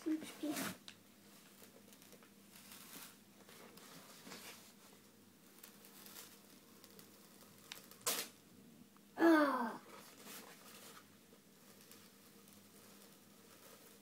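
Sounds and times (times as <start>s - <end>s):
wallpaper tearing and rustling: 0.0s - 8.4s.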